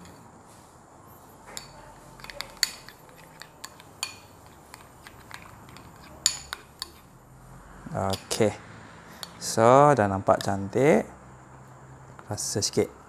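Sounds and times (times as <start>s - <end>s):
spoon clinking against glass bowl: 1.5s - 7.1s.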